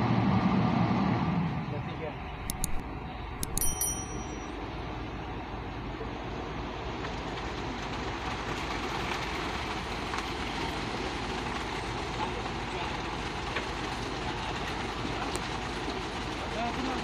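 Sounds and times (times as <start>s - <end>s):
diesel engine rumble: 4.0s - 17.0s.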